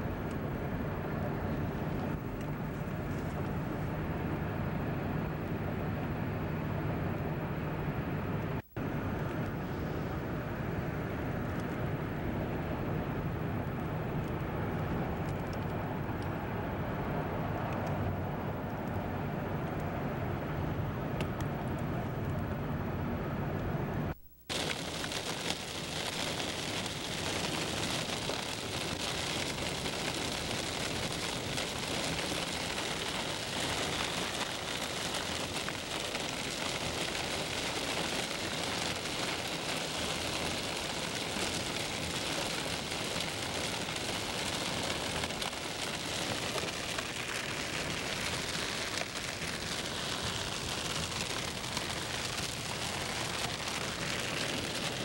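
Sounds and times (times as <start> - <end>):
tyres on wet road: 14.1 - 55.0
rain on car: 24.5 - 55.0.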